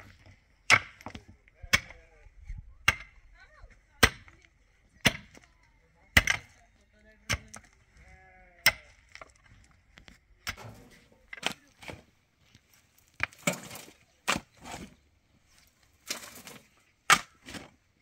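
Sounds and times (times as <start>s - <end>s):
pickaxe striking stony soil: 0.7s - 1.2s, 6.2s - 6.5s, 10.4s - 12.1s, 13.2s - 15.0s, 16.0s - 17.8s
faint bleating call: 8.0s - 8.7s.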